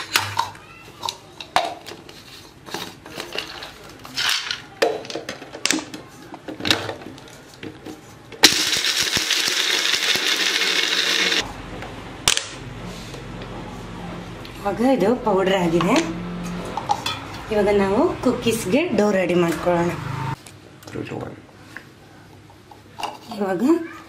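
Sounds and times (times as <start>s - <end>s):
blender motor grinding: 8.4s - 11.5s.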